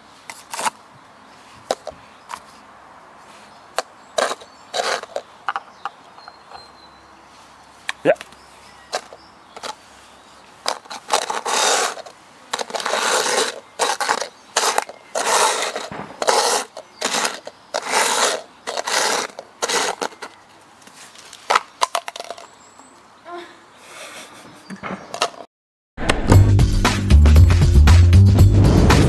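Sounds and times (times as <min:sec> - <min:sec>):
plastic cups scraping on concrete: 0:00.3 - 0:00.8, 0:01.7 - 0:02.5, 0:03.8 - 0:06.7, 0:08.9 - 0:09.9, 0:10.6 - 0:22.5, 0:25.1 - 0:25.4.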